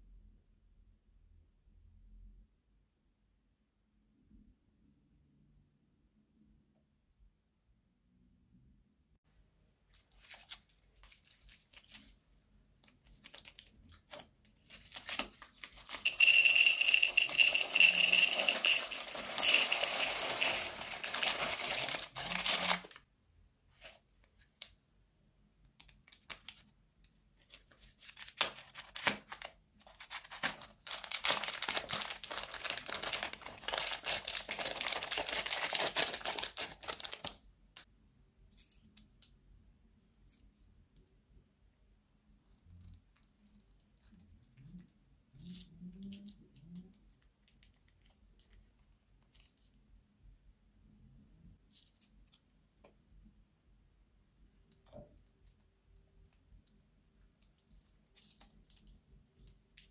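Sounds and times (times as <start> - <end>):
plastic bag crinkling: 13.1 - 23.0, 28.8 - 37.4
plastic beads pouring into a bowl: 15.8 - 23.0.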